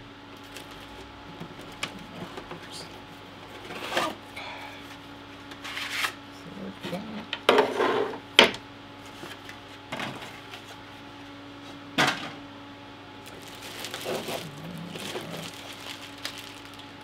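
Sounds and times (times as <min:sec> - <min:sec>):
plastic bag rustling: 0:00.4 - 0:02.1, 0:13.2 - 0:17.0.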